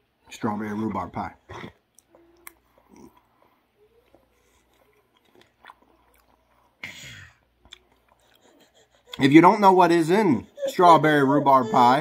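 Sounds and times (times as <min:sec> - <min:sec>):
soft chewing: 0:01.4 - 0:09.3.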